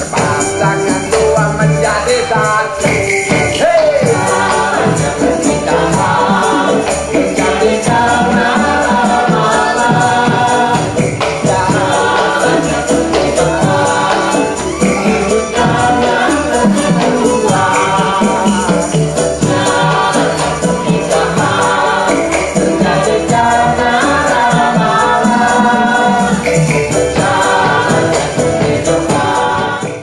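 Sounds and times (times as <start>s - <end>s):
choir singing: 0.0s - 30.0s
percussion beat: 0.0s - 30.0s.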